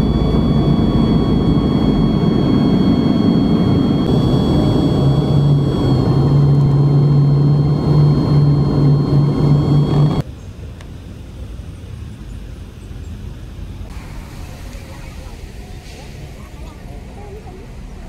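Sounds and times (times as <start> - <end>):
jet engine fan whine: 0.0 - 10.3
jet engine low rumble: 0.0 - 18.0.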